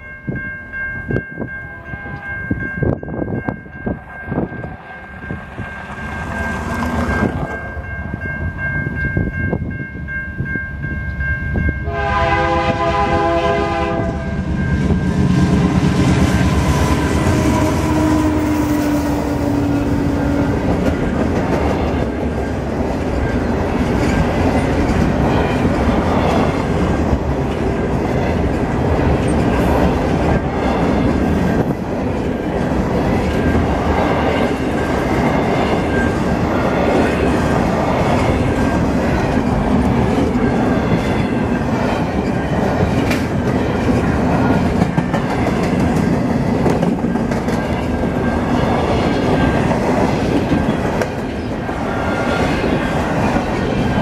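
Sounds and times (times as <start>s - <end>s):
train wheels rumbling on rail: 0.0s - 54.0s
wheels clacking over rail joints: 32.1s - 51.6s.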